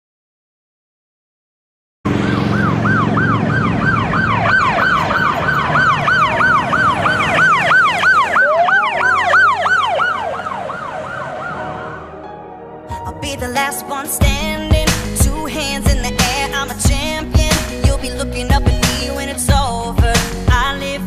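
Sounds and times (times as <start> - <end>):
low traffic rumble: 2.1 - 12.2
police sirens yelping: 2.1 - 12.2
rising siren wail: 2.1 - 12.6.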